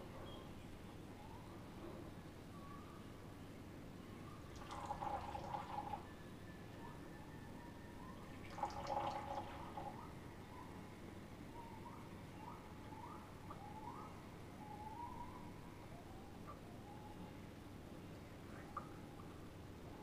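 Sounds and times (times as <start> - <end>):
tea pouring into cups: 4.5 - 6.0, 8.4 - 10.0.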